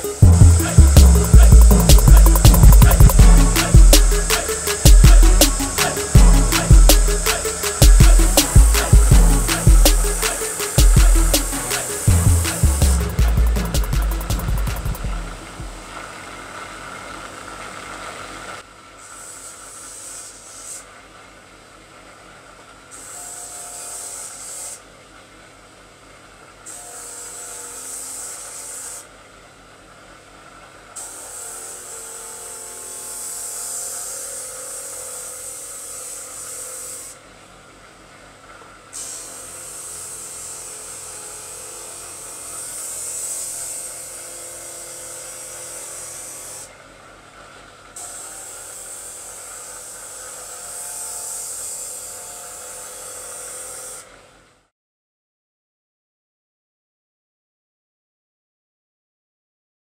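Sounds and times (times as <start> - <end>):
sandpaper rasping on wood: 0.0 - 15.0.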